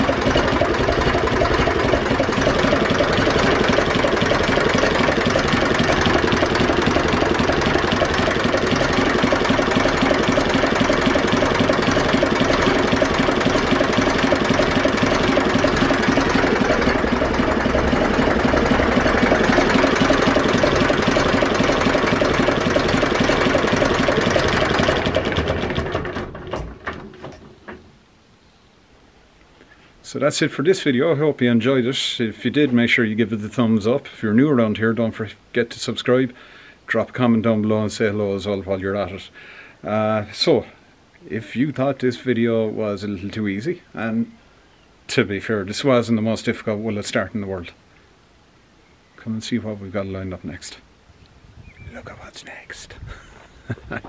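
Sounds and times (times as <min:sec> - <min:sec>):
tractor diesel engine idling: 0:00.0 - 0:27.0.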